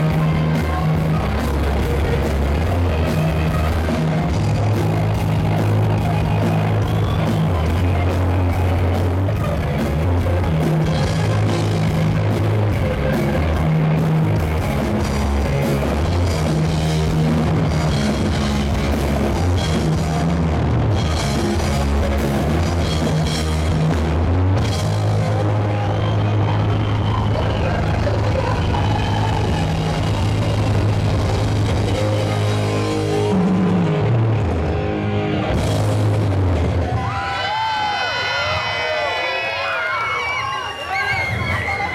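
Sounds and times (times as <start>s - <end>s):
drum kit beat: 0.0s - 26.7s
electric guitars: 0.0s - 41.9s.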